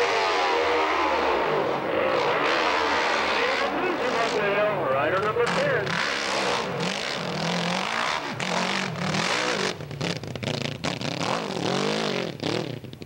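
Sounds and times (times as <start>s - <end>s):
motorcycle engine revving hard: 0.0s - 13.0s.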